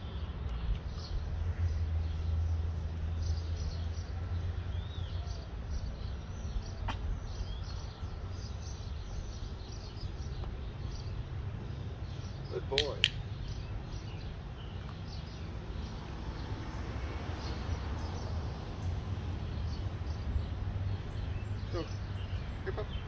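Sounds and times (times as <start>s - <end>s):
sharp click: 12.7s - 13.2s.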